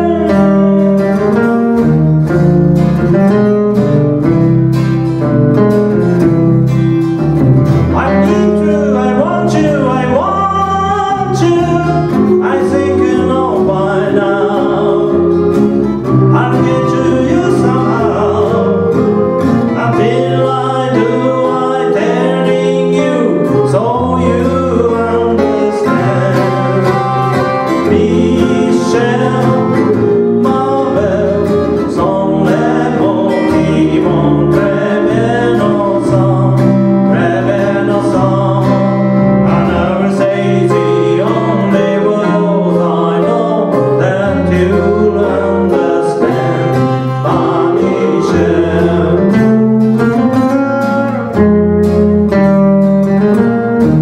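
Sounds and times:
man singing: 0:00.0 - 0:01.9, 0:07.8 - 0:49.7
acoustic guitars strummed and picked: 0:00.0 - 0:54.0.

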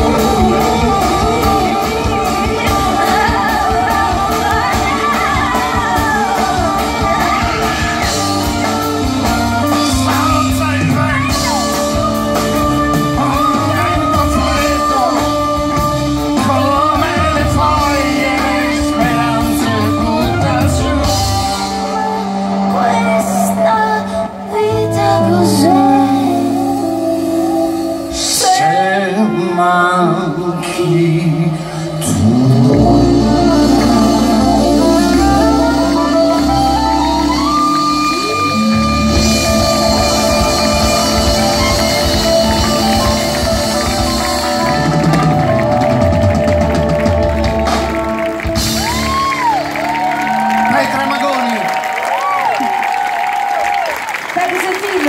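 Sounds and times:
drum kit: 0:00.0 - 0:23.5, 0:32.0 - 0:53.5
double bass: 0:00.0 - 0:23.6, 0:31.0 - 0:50.4
woman singing: 0:00.0 - 0:47.0
keyboard: 0:00.0 - 0:52.4.

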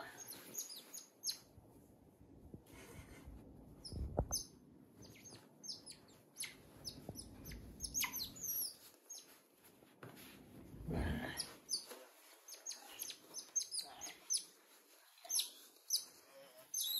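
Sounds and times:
otter chirps and squeaks: 0:00.2 - 0:01.5, 0:03.8 - 0:09.4, 0:11.4 - 0:11.9, 0:12.5 - 0:16.9
bedding rustling: 0:08.5 - 0:16.8.

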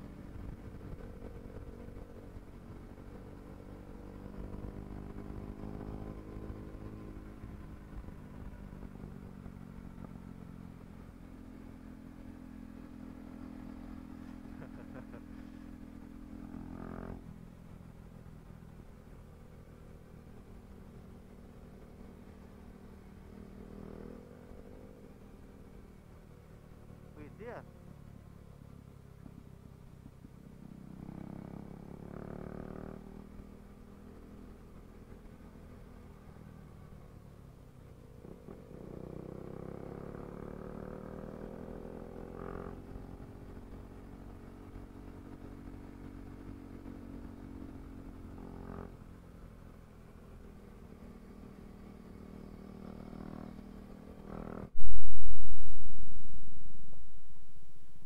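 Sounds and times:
motorcycle engine accelerating: 0:00.0 - 0:58.0
loud low rumble: 0:54.8 - 0:58.0.

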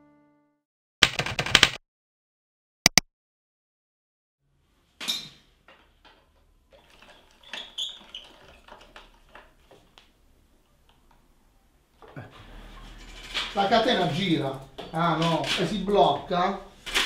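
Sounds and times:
bicycle metal clinks and rattles: 0:05.1 - 0:10.0.

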